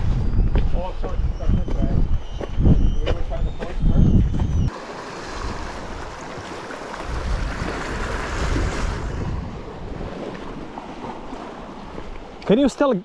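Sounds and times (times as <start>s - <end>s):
wind buffeting microphone: 0.0s - 12.4s
waves washing against rocks: 4.7s - 12.2s.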